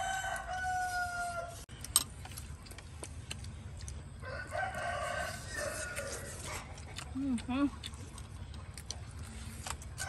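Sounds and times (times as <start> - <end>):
rooster crowing: 0.0 - 1.6, 4.2 - 6.5.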